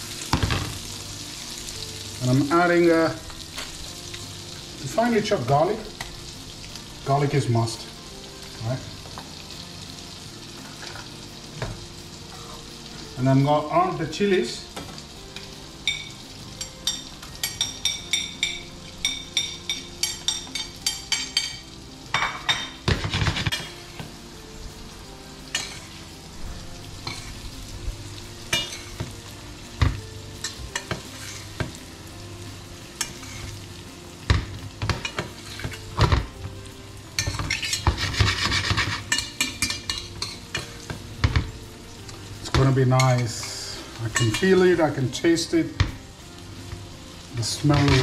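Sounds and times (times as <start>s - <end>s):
fish sizzling in frying pan: 0.0s - 48.0s
metal spoon scraping pan: 37.2s - 40.7s.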